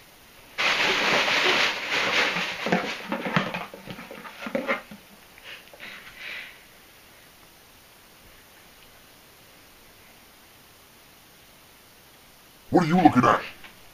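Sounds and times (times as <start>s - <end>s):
hands rustling box packing: 0.6s - 6.1s.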